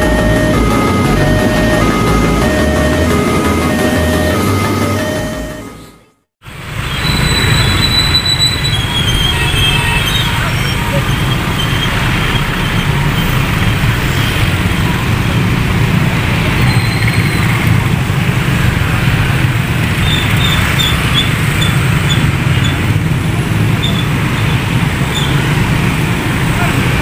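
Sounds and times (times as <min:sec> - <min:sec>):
tyres on wet asphalt: 0:06.4 - 0:27.0.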